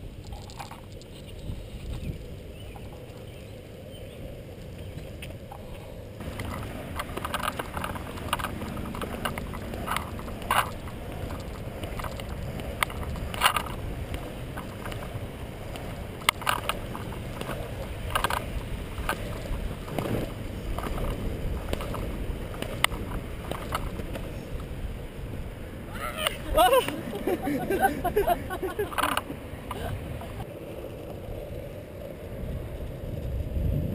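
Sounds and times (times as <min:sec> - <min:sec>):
skateboard wheels rolling on asphalt: 0:00.0 - 0:33.9.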